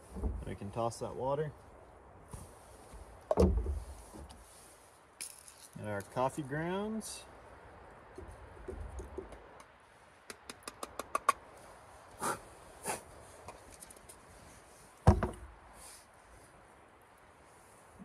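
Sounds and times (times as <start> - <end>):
loud thump: 15.1 - 15.5.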